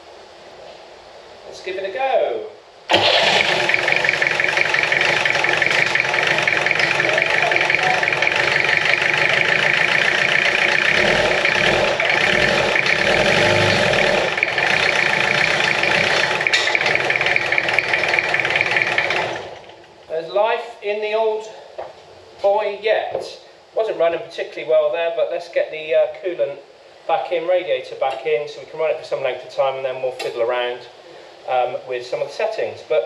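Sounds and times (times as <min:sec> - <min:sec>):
diesel engine running roughly: 0:02.9 - 0:19.8.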